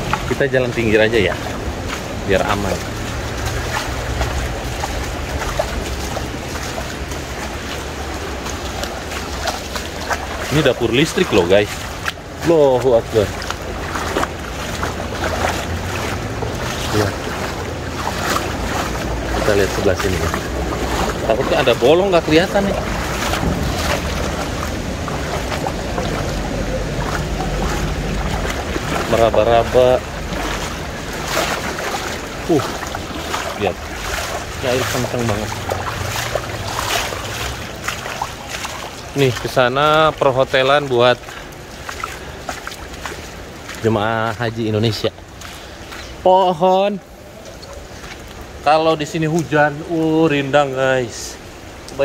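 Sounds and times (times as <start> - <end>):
floodwater rushing: 0.0 - 52.0
short splashes: 0.0 - 52.0.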